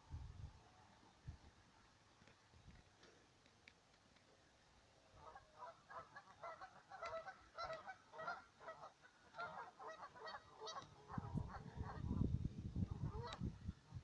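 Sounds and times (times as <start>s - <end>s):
geese honking: 5.2s - 12.2s.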